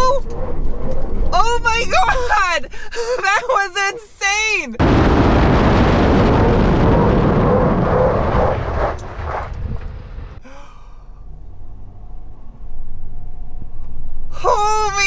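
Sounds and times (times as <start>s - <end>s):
wind buffeting: 0.0s - 3.5s, 4.8s - 10.4s
steady hum inside vehicle cab: 10.4s - 15.0s.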